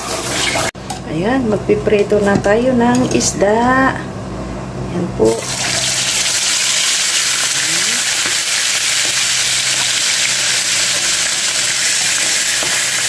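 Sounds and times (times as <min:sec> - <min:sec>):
fish sizzling in hot oil: 0:05.5 - 0:13.0.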